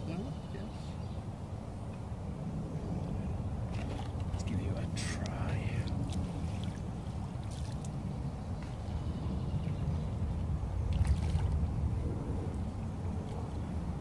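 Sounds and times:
steady low rumble: 0:00.0 - 0:14.0
fish splashing in water: 0:05.9 - 0:08.1, 0:10.9 - 0:11.8.

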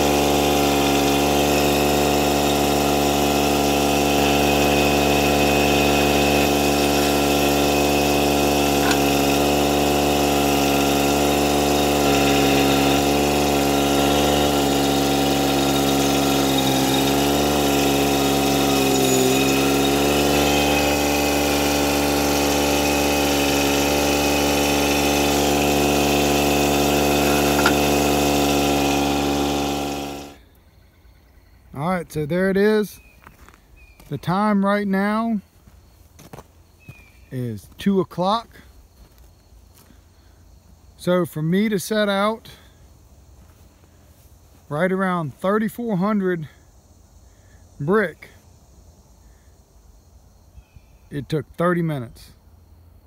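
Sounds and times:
loader engine running: 0:00.0 - 0:30.4.

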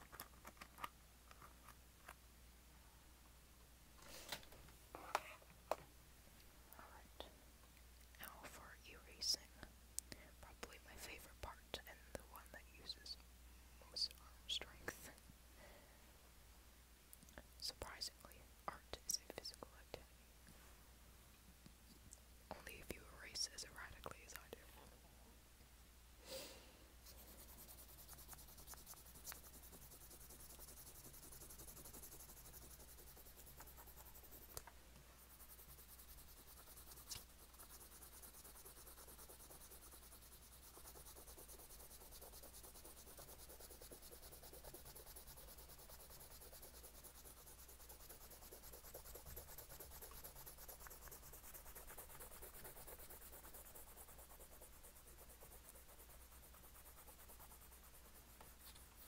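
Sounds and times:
drawing tool scratching paper: 0:27.1 - 0:34.6, 0:35.2 - 0:59.0.

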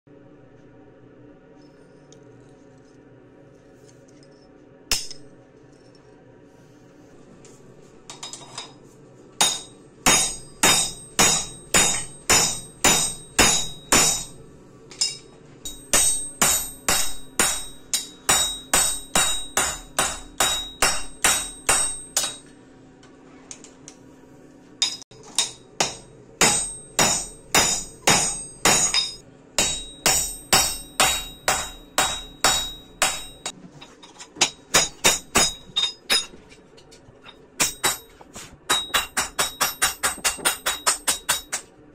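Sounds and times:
hammer ringing on steel: 0:09.4 - 0:14.4, 0:15.0 - 0:22.5, 0:24.8 - 0:33.6, 0:34.4 - 0:36.4, 0:37.6 - 0:41.6.

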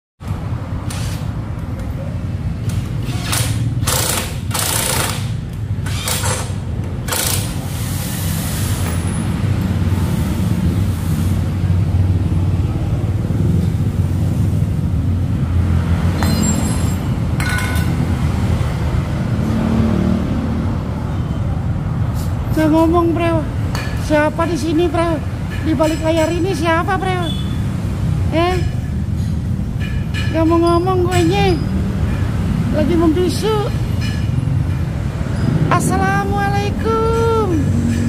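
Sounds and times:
passing street traffic rumble: 0:00.2 - 0:38.0
power wrench bursts: 0:00.8 - 0:01.3, 0:03.0 - 0:08.9.

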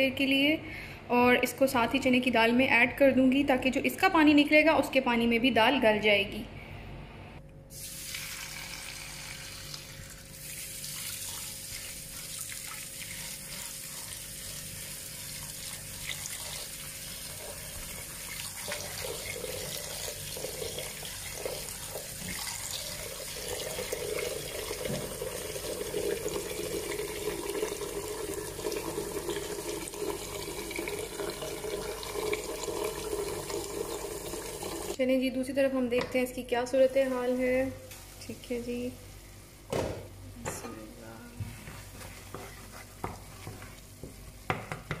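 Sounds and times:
tap running into a pot: 0:24.7 - 0:25.4.

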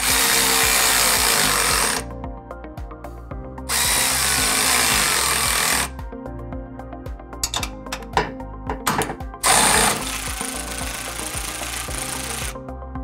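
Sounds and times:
electric ratchet running: 0:00.0 - 0:02.1, 0:03.7 - 0:05.9, 0:09.4 - 0:12.6.

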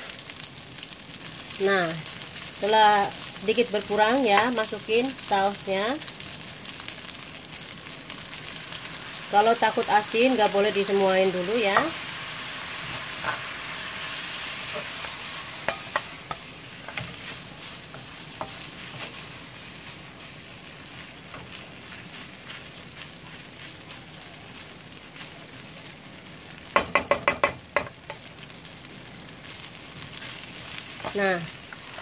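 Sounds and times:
rice sizzling in frying pan: 0:00.0 - 0:32.0
utensil knocking on pan: 0:15.6 - 0:16.4, 0:26.8 - 0:28.2.

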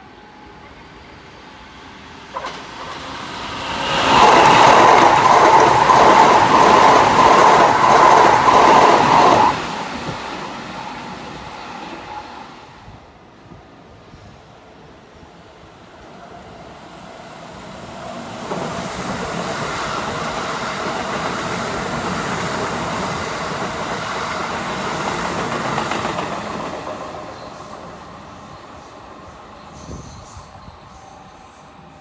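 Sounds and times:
electric train rumbling past: 0:00.0 - 0:32.0.

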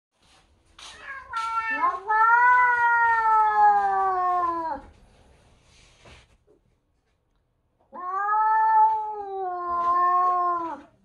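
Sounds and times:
cat yowling: 0:01.1 - 0:04.8, 0:07.9 - 0:10.9.

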